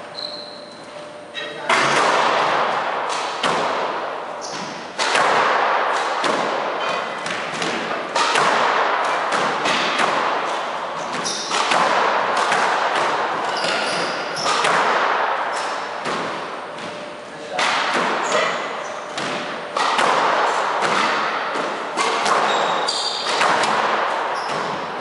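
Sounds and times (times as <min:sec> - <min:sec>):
sneakers squeaking on wooden floor: 0:00.1 - 0:01.6, 0:04.4 - 0:04.8, 0:11.0 - 0:11.6, 0:13.4 - 0:14.7, 0:22.0 - 0:23.4, 0:24.3 - 0:25.0
squash ball hits echoing: 0:01.6 - 0:25.0.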